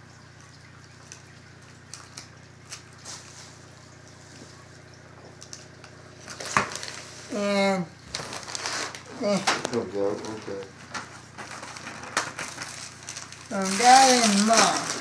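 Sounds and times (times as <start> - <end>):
clothing and paper rustling: 8.1 - 15.0.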